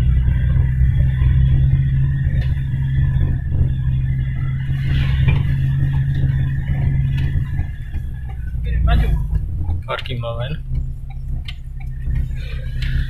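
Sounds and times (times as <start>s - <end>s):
diesel engine droning: 0.0s - 13.0s.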